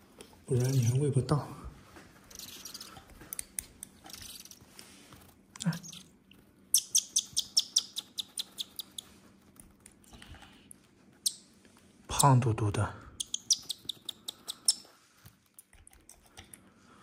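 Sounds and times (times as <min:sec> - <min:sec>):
nestling chirping: 0:02.3 - 0:03.0, 0:04.0 - 0:04.6, 0:05.6 - 0:09.2, 0:11.2 - 0:11.5, 0:13.2 - 0:14.9.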